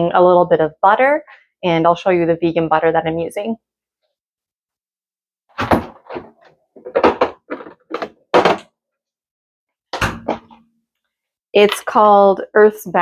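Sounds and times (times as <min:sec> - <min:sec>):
kitchen items clunking: 0:05.6 - 0:08.6.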